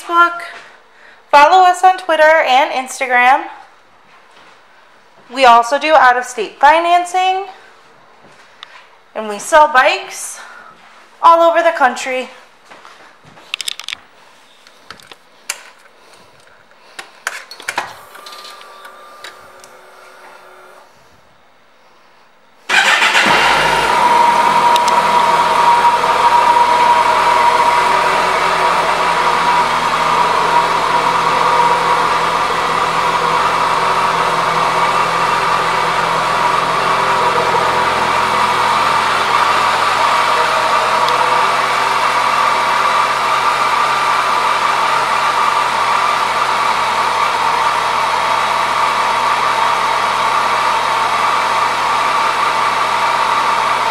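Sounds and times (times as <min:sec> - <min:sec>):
motorcycle engine idling: 0:22.7 - 0:53.7.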